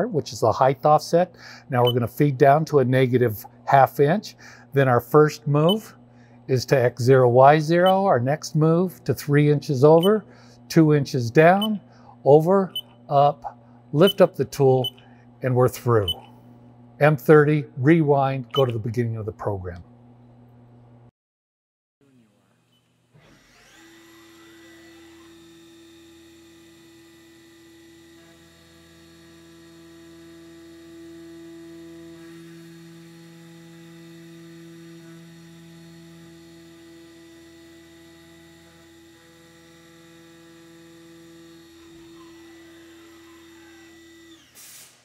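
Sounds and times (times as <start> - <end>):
milling machine whine: 23.3 - 44.6.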